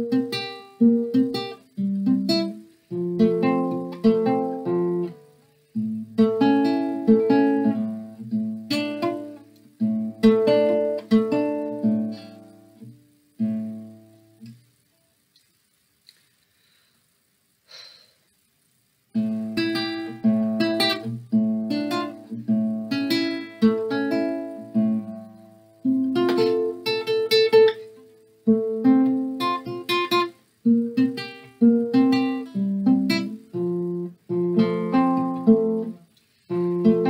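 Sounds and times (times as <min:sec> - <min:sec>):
classical guitar fingerstyle: 0:00.0 - 0:14.8, 0:19.1 - 0:37.0.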